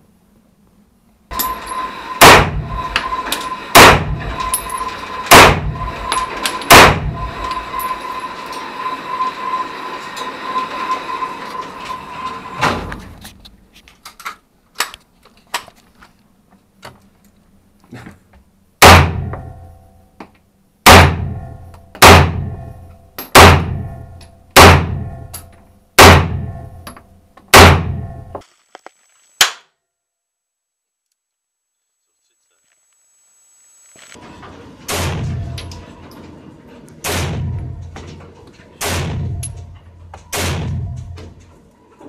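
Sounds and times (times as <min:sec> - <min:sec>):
loud gunshots ringing indoors: 0:01.3 - 0:07.8, 0:18.8 - 0:19.6, 0:20.8 - 0:25.3, 0:26.0 - 0:26.8, 0:27.5 - 0:28.3, 0:37.0 - 0:37.8, 0:38.8 - 0:39.6, 0:40.3 - 0:41.2
steady hiss with thin tone: 0:30.5 - 0:34.2.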